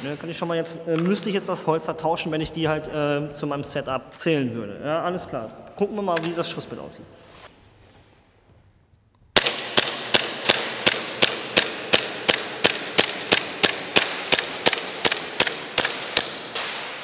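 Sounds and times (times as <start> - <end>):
airsoft pistol shots echoing: 9.4 - 17.0.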